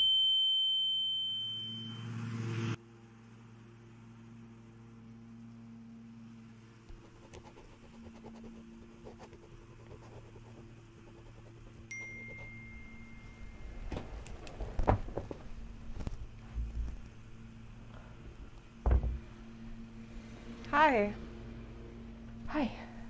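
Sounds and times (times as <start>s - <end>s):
faint steady hum: 2.8s - 23.0s
phone notification chime: 11.9s - 13.7s.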